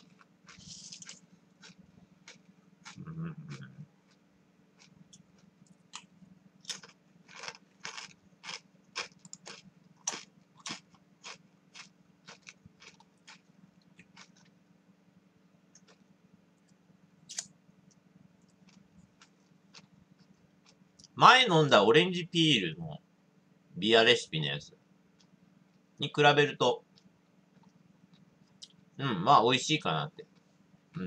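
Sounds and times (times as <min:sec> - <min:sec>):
potato chips crunching: 0:00.0 - 0:04.2, 0:04.8 - 0:13.4.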